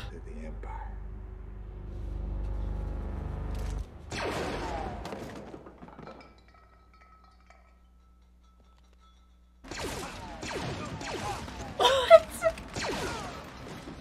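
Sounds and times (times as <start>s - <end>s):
low tense music drone: 0.0s - 4.9s
blaster shot with crackling debris: 4.1s - 5.2s, 9.7s - 11.7s, 12.7s - 14.0s.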